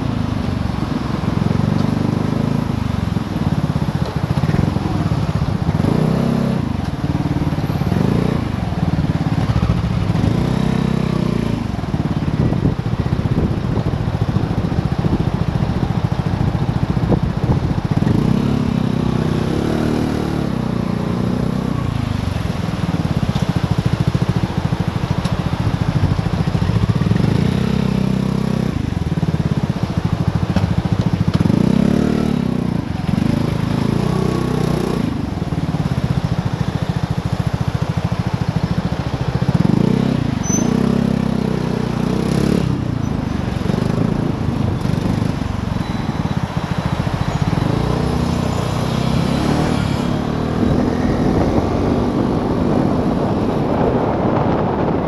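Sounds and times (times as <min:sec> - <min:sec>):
scooter engine idling and revving: 0:00.0 - 0:55.0.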